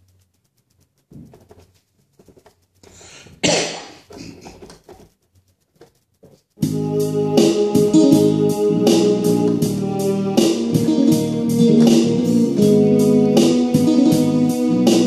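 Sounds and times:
keyboard organ-like tones: 6.6s - 15.0s.

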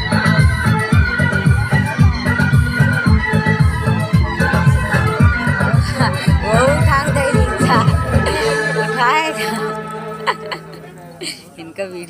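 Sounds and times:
loud music with heavy bass beat: 0.0s - 8.6s.

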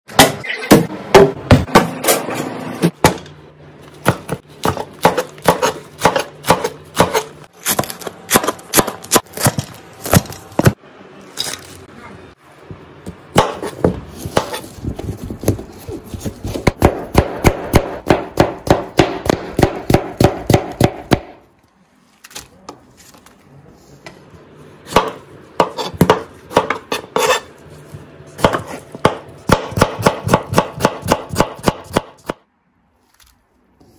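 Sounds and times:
knife chopping on cutting board: 4.0s - 10.8s, 13.3s - 14.7s, 16.2s - 21.4s, 24.9s - 27.5s, 28.4s - 32.4s.

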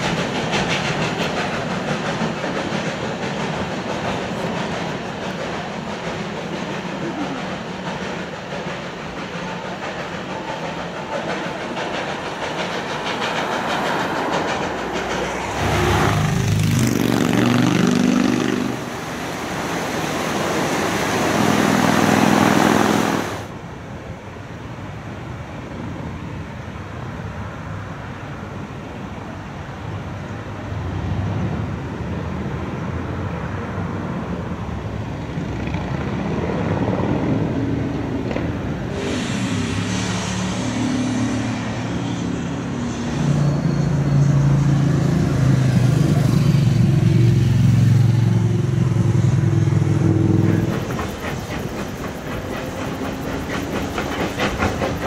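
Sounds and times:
steam hissing: 0.0s - 17.2s, 18.2s - 23.5s, 38.6s - 55.0s
rail clatter: 0.0s - 23.6s, 35.2s - 55.0s
steam locomotive running: 0.0s - 24.2s, 28.2s - 55.0s.

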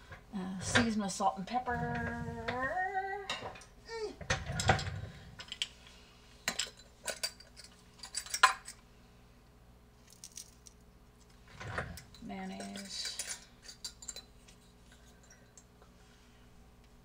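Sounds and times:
kitchen utensils clinking: 6.5s - 8.8s, 11.6s - 15.6s.

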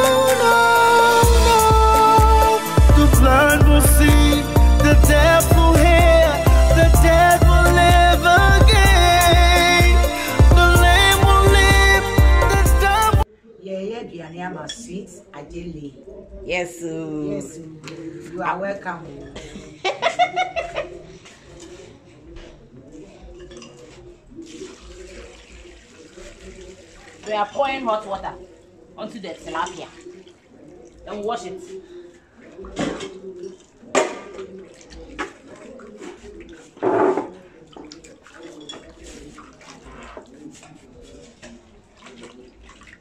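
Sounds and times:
kitchenware clinking on metal basin: 14.6s - 15.1s, 23.1s - 25.0s, 32.7s - 43.0s
water pouring into basin: 24.3s - 43.0s.

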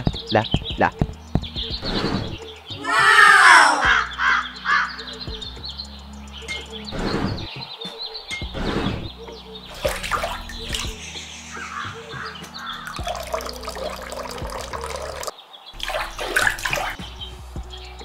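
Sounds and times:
background music: 0.0s - 18.0s
water trickling into bowl: 9.7s - 11.0s, 12.6s - 17.0s.

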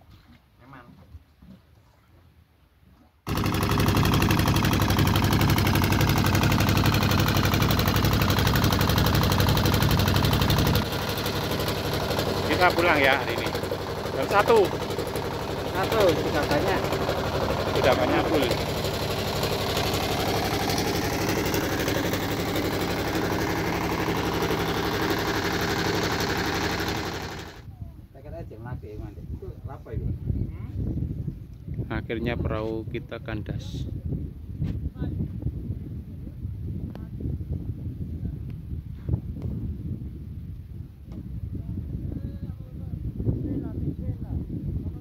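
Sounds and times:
boat engine running: 3.3s - 27.6s.

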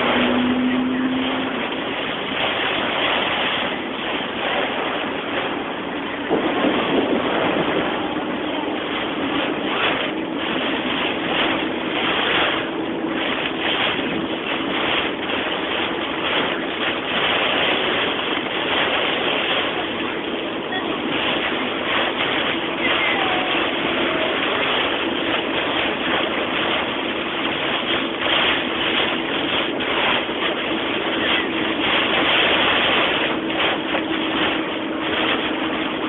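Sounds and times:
heavy rain on car windshield: 9.3s - 36.0s.

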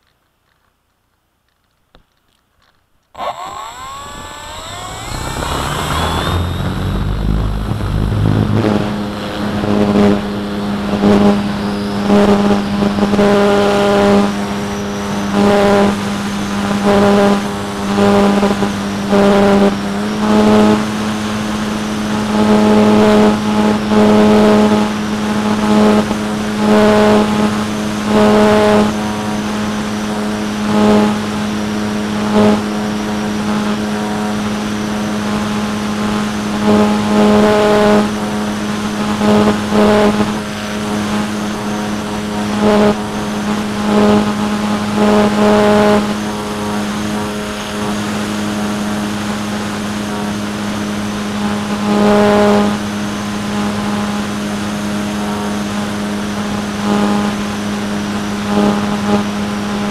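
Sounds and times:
electric motor whine: 3.2s - 52.8s
low rumble: 3.3s - 9.5s.

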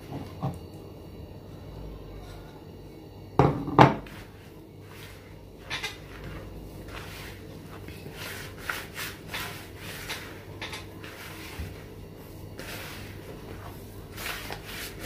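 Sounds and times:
hands rubbing dough in bowl: 4.0s - 15.0s.

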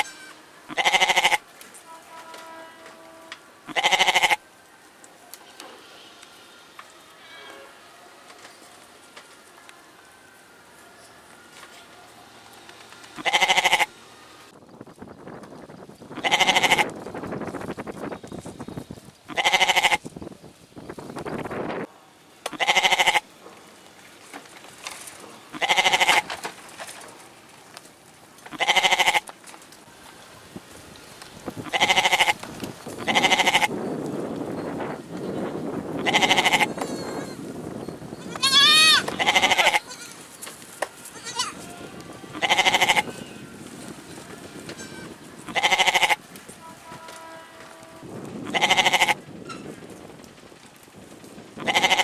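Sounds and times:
goats bleating: 0.7s - 1.4s, 3.7s - 4.4s, 13.2s - 13.9s, 16.2s - 16.8s, 19.3s - 20.0s, 22.5s - 23.2s, 25.5s - 26.3s, 28.5s - 29.2s, 31.6s - 32.4s, 33.0s - 33.7s, 36.0s - 36.8s, 38.2s - 40.3s, 41.0s - 43.4s, 45.5s - 46.2s, 48.5s - 49.2s, 51.6s - 52.0s
dry branches rustling: 4.4s - 13.3s, 23.2s - 36.0s, 39.0s - 45.6s, 46.2s - 48.6s.

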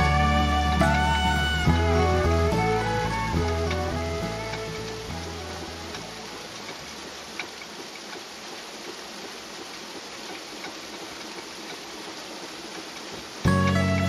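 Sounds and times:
water mill grinding: 0.0s - 14.0s
light wooden ticks: 2.9s - 14.0s.

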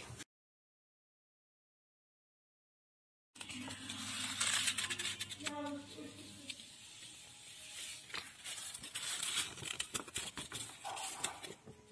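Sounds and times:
paper rustling and crinkling: 3.4s - 11.9s
light paper clicks: 8.1s - 11.7s.

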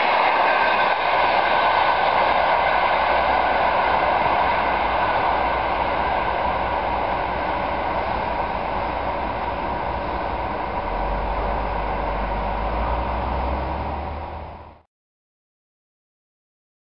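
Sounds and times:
train rolling on tracks: 0.0s - 14.8s
deep low rumble: 8.2s - 14.8s.

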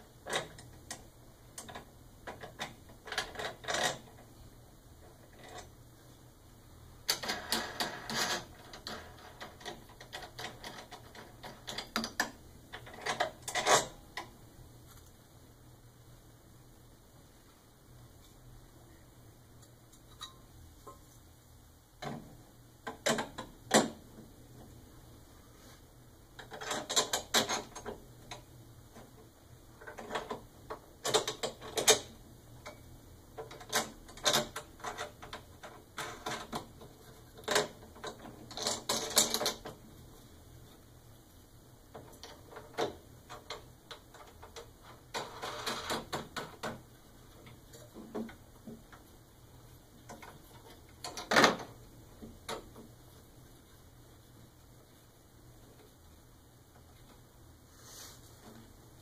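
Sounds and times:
metal parts clicking and rattling: 1.6s - 4.2s, 7.1s - 14.3s, 26.4s - 28.5s, 29.8s - 32.8s, 33.4s - 39.8s, 50.0s - 52.9s.

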